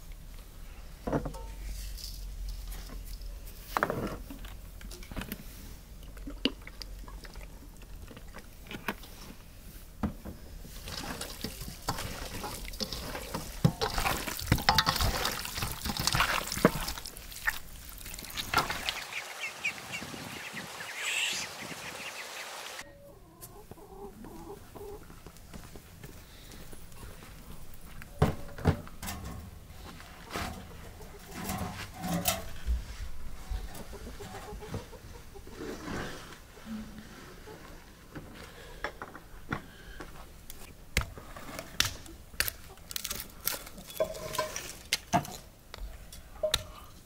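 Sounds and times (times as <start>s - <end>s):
hands squelching raw fish: 10.8s - 19.1s
chickens clucking: 18.0s - 25.1s, 30.2s - 31.8s, 33.4s - 36.0s.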